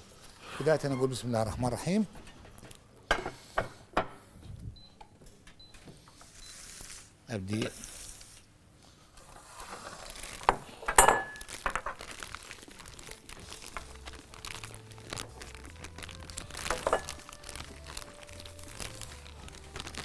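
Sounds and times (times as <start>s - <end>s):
plastic bag crinkling: 9.9s - 20.0s
bowl clinking on counter: 10.9s - 11.4s.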